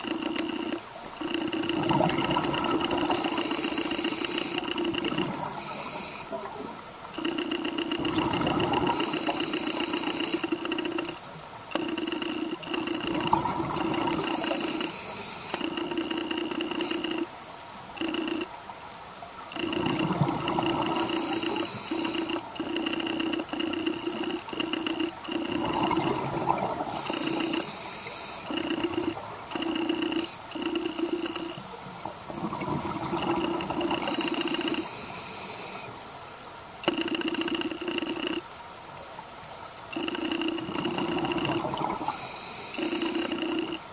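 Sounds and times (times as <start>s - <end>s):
bubbly gurgle of exhaled air: 0.0s - 6.6s, 7.2s - 17.3s, 19.5s - 35.1s, 40.0s - 43.9s
two-tone hum: 0.0s - 17.3s, 19.5s - 35.9s, 39.9s - 43.9s
hiss of inhalation: 3.1s - 4.9s, 5.6s - 6.4s, 8.9s - 11.1s, 14.1s - 15.9s, 20.9s - 25.4s, 27.0s - 31.8s, 34.0s - 36.0s, 42.0s - 43.8s.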